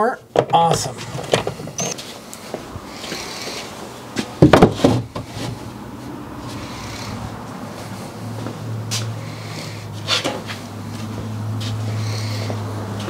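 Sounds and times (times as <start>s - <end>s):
shelf knocking and rattling: 4.4s - 5.3s.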